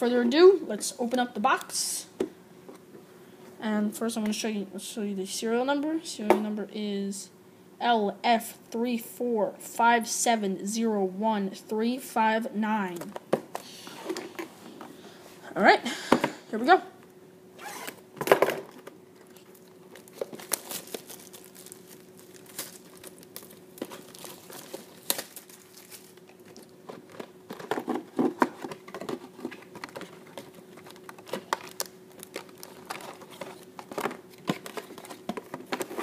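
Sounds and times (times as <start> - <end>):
plastic shrink wrap crinkling: 19.2 - 36.0.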